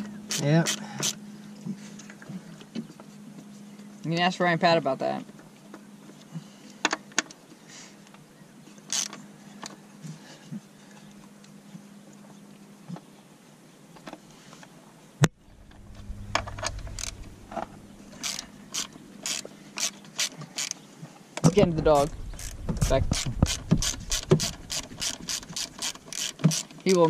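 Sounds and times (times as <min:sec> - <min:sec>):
low rumble: 0:15.3 - 0:18.7, 0:21.5 - 0:25.4
hand ratchet clicking: 0:16.4 - 0:17.3, 0:18.1 - 0:20.8, 0:22.3 - 0:27.0.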